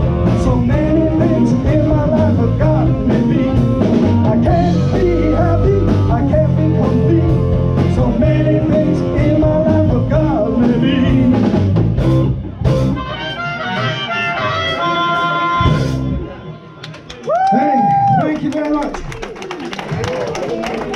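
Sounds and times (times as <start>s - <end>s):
person singing: 0.0s - 11.6s
drum kit: 0.0s - 16.4s
bass guitar: 0.0s - 16.7s
electric guitars: 0.0s - 17.1s.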